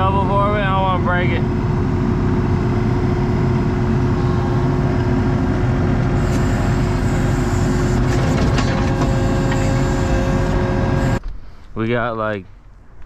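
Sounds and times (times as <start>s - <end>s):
diesel engine running: 0.0s - 11.2s.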